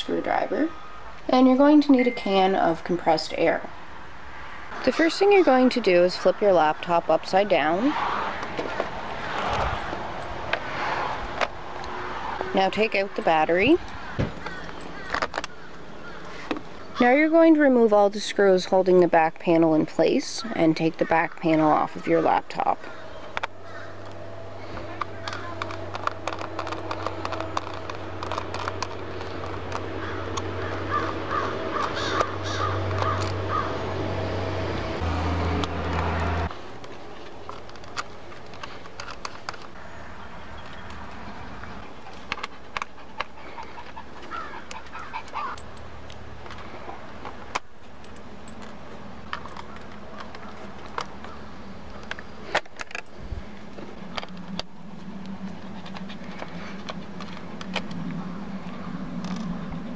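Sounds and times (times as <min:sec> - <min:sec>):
bird calling: 0:00.2 - 0:03.5, 0:11.6 - 0:17.3, 0:20.3 - 0:34.1, 0:38.7 - 0:45.8, 0:49.4 - 0:59.9
steady low hum: 0:22.8 - 0:59.9.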